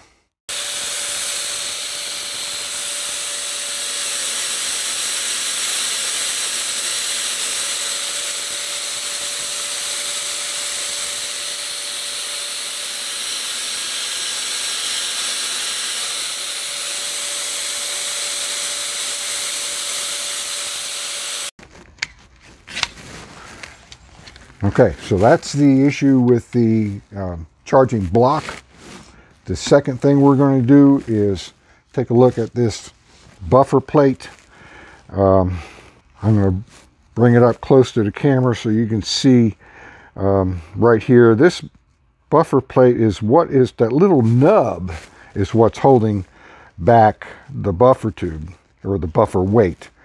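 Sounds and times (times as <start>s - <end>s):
belt sander running: 0.5s - 21.6s.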